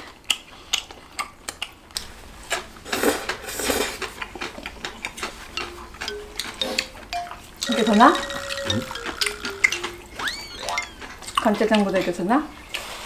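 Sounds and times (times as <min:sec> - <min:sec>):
noodle slurping and chewing: 0:00.0 - 0:06.6
chopsticks clicking on dishes: 0:04.4 - 0:11.5.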